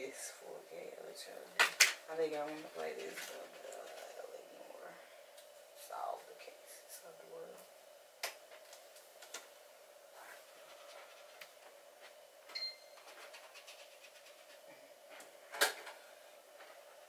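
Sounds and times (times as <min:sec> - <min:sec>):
faint steady hum: 0:00.0 - 0:17.0.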